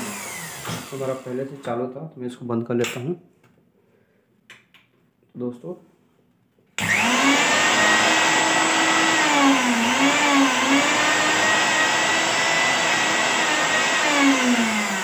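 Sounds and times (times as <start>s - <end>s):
mixer grinder motor whining: 0.0s - 1.4s, 6.8s - 15.0s.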